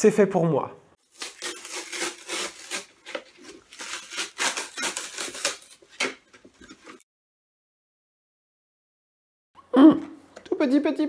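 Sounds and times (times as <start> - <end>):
packaging crackling and rustling: 1.0 - 6.6.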